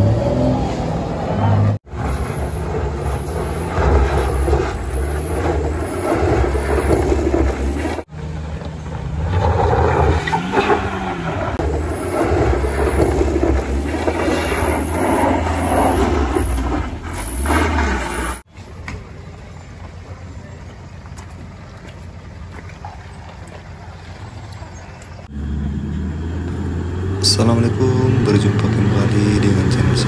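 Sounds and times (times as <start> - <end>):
truck engine revving hard: 0.0 - 18.5, 25.2 - 30.0
loud engine rumble: 0.0 - 30.0.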